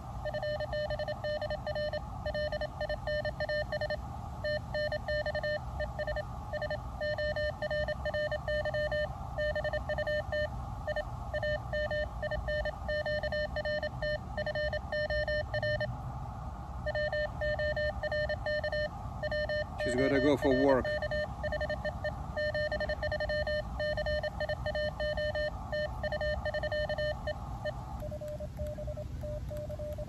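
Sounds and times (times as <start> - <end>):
morse code tone: 4.5 - 15.9, 16.9 - 30.0
radio band noise hiss: 18.9 - 30.0.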